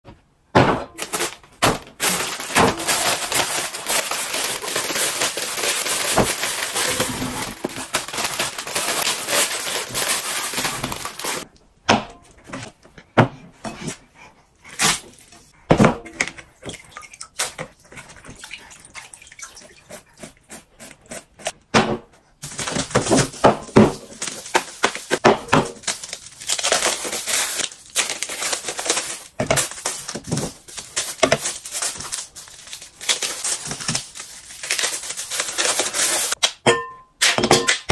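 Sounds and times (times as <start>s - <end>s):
wrapper crinkling and tearing: 1.0s - 11.5s, 22.4s - 36.4s.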